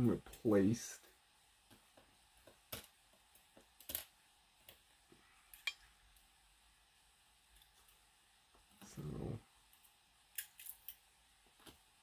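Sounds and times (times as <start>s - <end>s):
metallic clicks of small pins: 2.7s - 4.8s, 5.5s - 6.2s, 9.7s - 11.0s.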